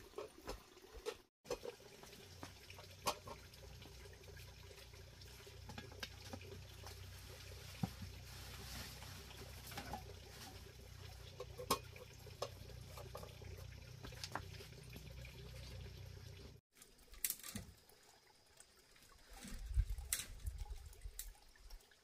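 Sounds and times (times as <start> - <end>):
metal pots clinking: 0.1 - 4.0, 8.8 - 14.5
soft rustles: 7.2 - 10.6.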